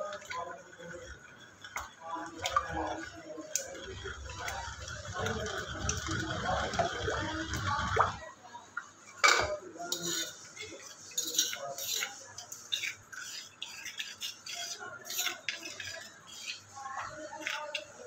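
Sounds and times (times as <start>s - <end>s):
pestle grinding in a mortar: 11.2s - 16.7s.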